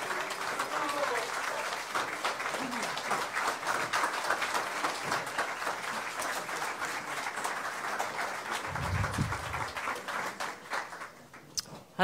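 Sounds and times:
audience applause: 0:00.0 - 0:11.5
low rumble: 0:08.7 - 0:09.7.

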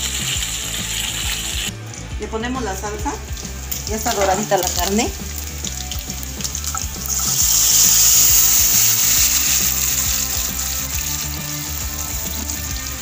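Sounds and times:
liquid sizzling in hot oil: 0:00.0 - 0:02.1, 0:02.7 - 0:13.0.

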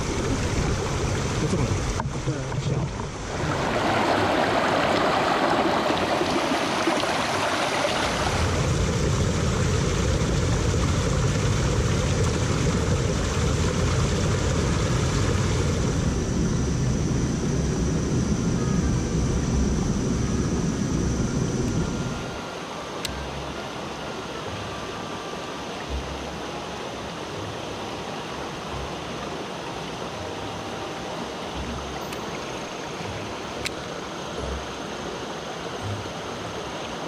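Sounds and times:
stream rushing over boulders: 0:00.0 - 0:17.4, 0:21.9 - 0:37.0.

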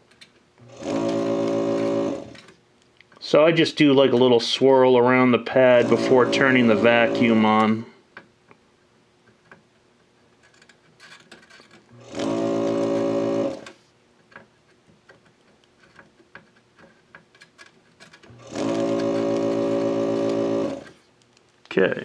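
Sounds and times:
vacuum pump buzzing: 0:00.6 - 0:02.5, 0:03.2 - 0:08.0, 0:11.9 - 0:13.8, 0:18.2 - 0:21.0.

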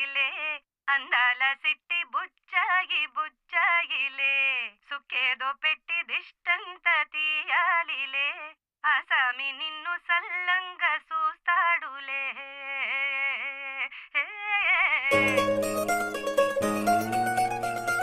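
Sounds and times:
woman singing wordless melody: 0:00.0 - 0:15.5
band led by mandolin: 0:15.1 - 0:18.0.

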